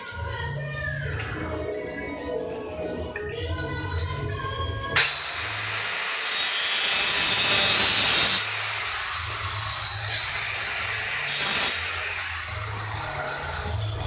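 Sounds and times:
tile saw cutting tile: 5.0s - 13.8s.

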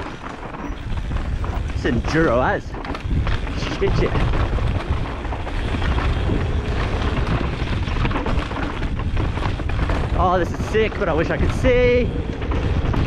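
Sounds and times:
bike rattling and knocking: 0.0s - 13.0s
tyres rumbling over dirt: 0.0s - 13.0s
wind buffeting microphone: 0.0s - 13.0s.

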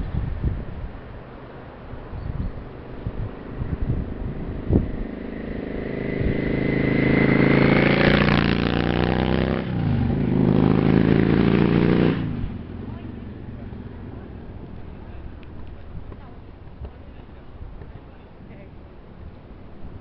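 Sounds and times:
motorcycle passing by: 1.5s - 15.6s.

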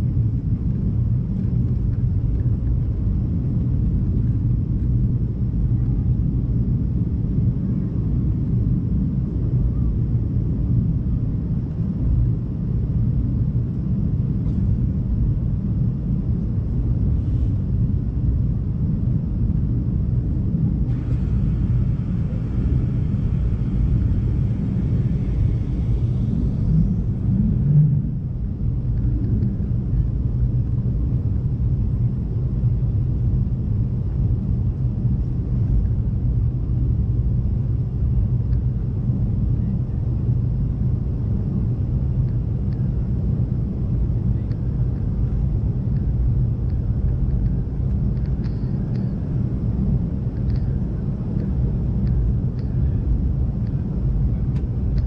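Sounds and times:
airliner engines rumbling: 0.0s - 55.0s
high hiss: 20.9s - 27.4s.

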